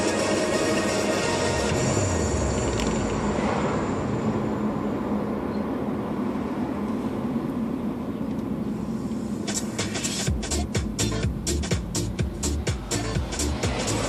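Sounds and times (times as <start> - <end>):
car road and engine noise: 0.0 - 14.0
sharp beats: 9.5 - 14.0.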